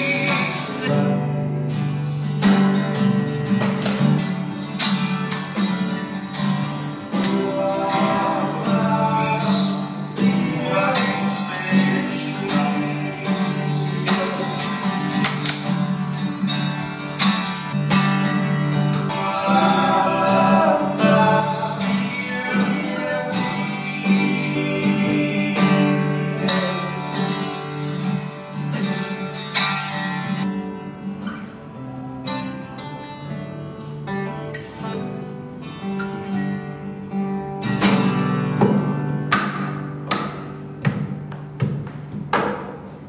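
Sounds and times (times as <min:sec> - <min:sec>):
man singing: 0:00.0 - 0:01.6, 0:07.0 - 0:15.2, 0:19.0 - 0:27.5
acoustic guitar strumming: 0:00.0 - 0:43.0.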